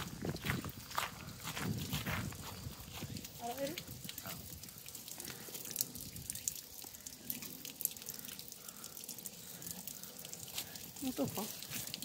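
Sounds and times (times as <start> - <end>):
footsteps crunching on gravel: 0.0 - 3.6.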